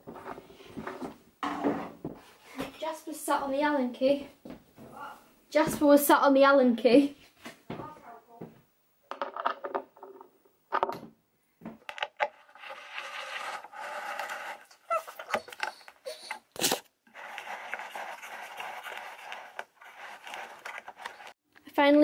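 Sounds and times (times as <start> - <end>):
metal scraping on wood: 11.9 - 16.0, 16.6 - 21.4.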